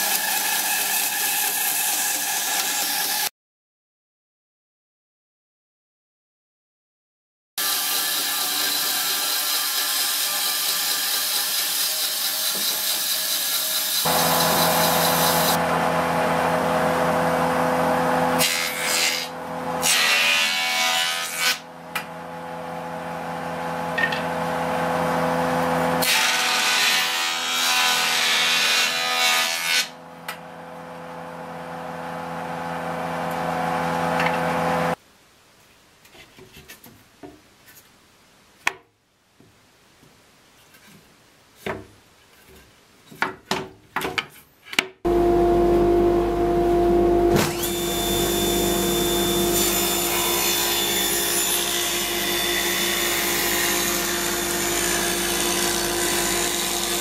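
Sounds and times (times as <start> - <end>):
bandsaw cutting wood: 0.0 - 3.3, 7.6 - 30.0, 47.0 - 57.0
jointer humming and cutting: 13.9 - 20.9, 21.9 - 29.4, 30.4 - 35.0, 45.1 - 57.0.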